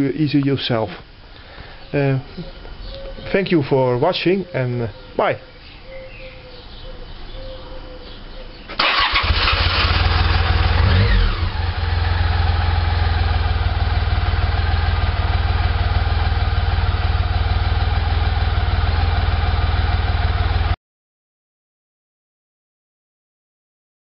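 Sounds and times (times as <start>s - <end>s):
motorcycle engine idling: 8.8s - 20.8s.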